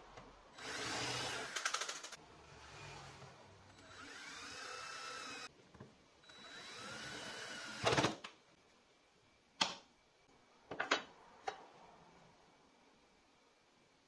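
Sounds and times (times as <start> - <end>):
cordless drill whining: 3.8 - 5.5.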